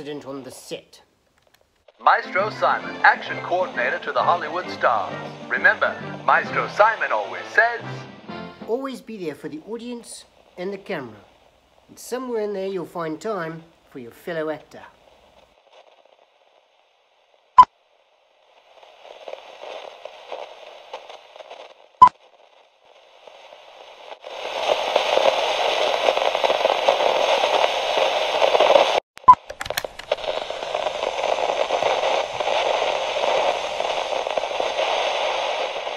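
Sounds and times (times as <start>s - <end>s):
old film crackle and hiss: 0.0s - 35.9s
loud sharp cracks: 28.3s - 35.9s.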